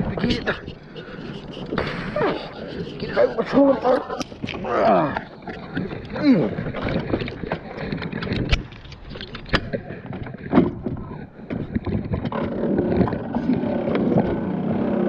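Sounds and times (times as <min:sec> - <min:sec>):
electric motor churning water: 0:11.7 - 0:15.0.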